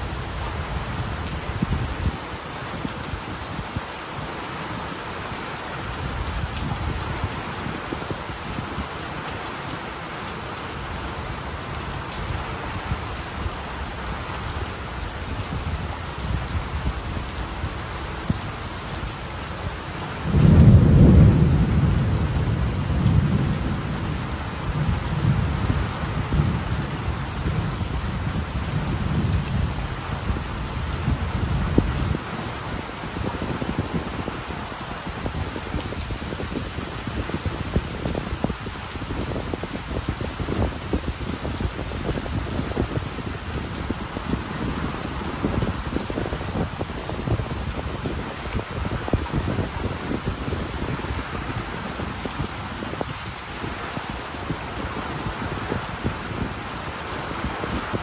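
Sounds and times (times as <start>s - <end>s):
steady rain falling: 0.0s - 58.0s
thunder rumbling: 20.2s - 32.4s.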